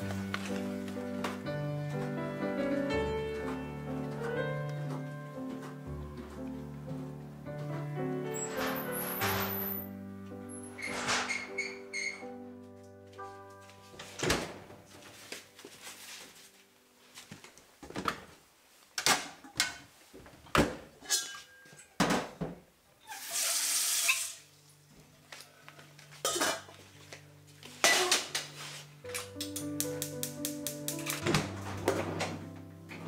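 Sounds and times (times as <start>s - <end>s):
quiet music: 0.0s - 17.5s, 24.4s - 33.0s
hiss: 23.1s - 24.5s
dishes clinking and knocking: 26.2s - 26.8s.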